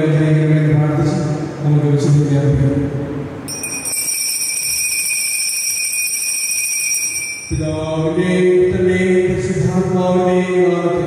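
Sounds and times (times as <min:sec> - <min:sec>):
high steady tone: 0:03.5 - 0:08.4.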